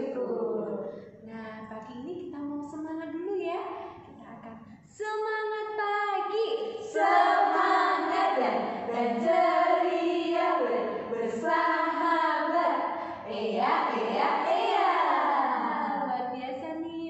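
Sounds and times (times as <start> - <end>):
women singing together: 0.0 - 1.0, 5.0 - 17.0.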